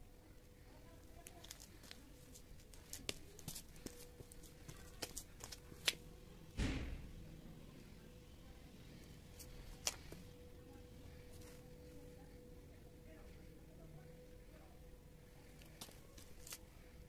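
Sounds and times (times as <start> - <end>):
faint steady hum: 0.0 - 17.0
footsteps on gritty concrete: 1.2 - 6.1, 15.6 - 16.7
low thump: 6.6 - 7.2.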